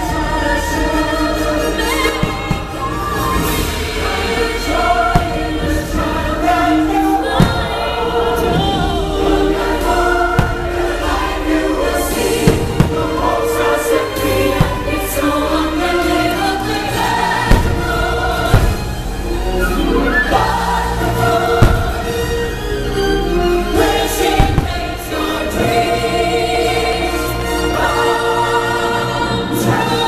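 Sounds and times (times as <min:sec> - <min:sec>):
choir singing: 0:00.0 - 0:30.0
fireworks bursting in sharp bangs: 0:16.9 - 0:22.3, 0:24.3 - 0:25.0.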